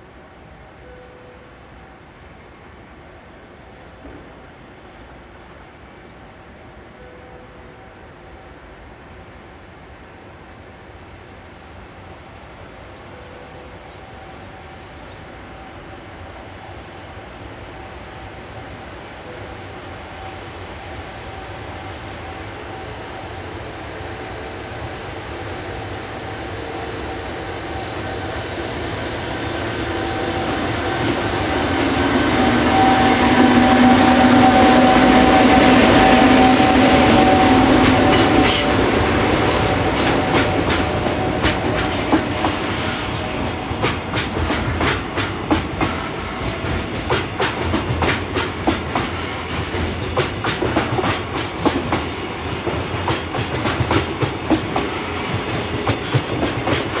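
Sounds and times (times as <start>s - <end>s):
electric locomotive hum: 0.0s - 57.0s
train wheels clicking over rail joints: 31.0s - 57.0s.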